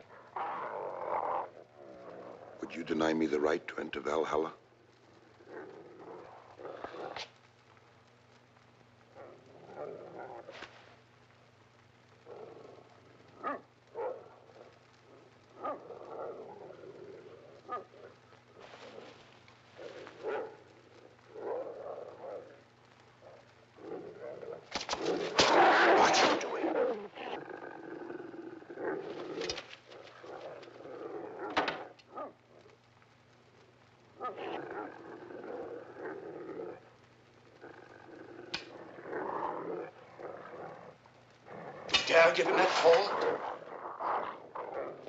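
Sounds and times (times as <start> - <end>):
wolves snarling: 0.0 - 2.8, 5.2 - 7.3, 9.1 - 10.8, 12.2 - 32.8, 34.1 - 45.0
wolves barking: 12.2 - 32.7, 34.0 - 36.8, 37.5 - 45.0.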